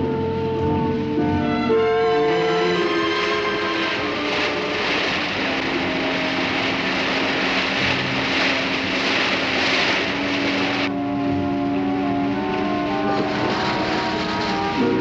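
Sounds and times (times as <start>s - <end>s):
background music with held notes: 0.0s - 15.0s
motorboat engine running fast: 2.2s - 15.0s
rush of bow spray: 3.5s - 10.9s.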